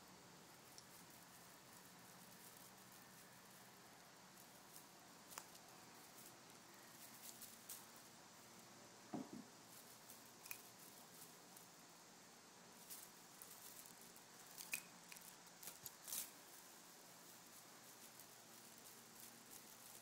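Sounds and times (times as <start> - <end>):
kitten moving clicks and rustles: 0.5 - 8.2, 9.2 - 11.8, 12.8 - 20.0
soft thump: 9.1 - 9.5.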